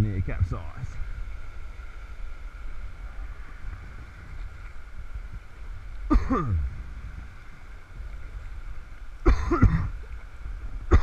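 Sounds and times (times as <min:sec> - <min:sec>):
person clearing throat: 0:06.1 - 0:06.6, 0:09.3 - 0:10.0.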